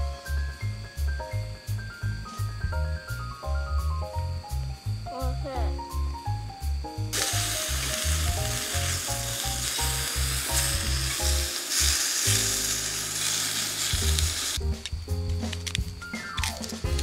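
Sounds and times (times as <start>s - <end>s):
meat sizzling in a skillet: 7.1s - 15.2s.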